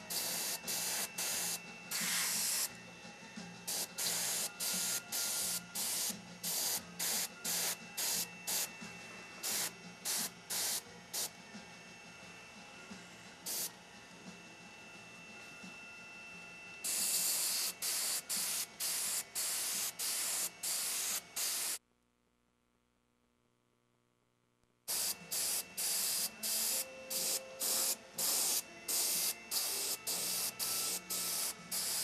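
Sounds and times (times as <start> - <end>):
airbrush spraying bursts: 0.0 - 2.7, 3.7 - 8.7, 9.4 - 11.3, 13.5 - 13.7, 16.8 - 21.8, 24.9 - 32.0.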